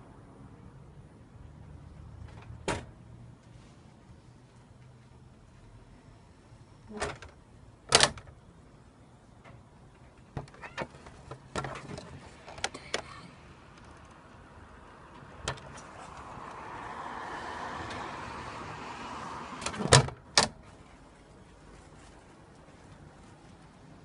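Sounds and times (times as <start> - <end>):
sliding door clicks and taps: 7.0 - 8.4, 19.6 - 20.6.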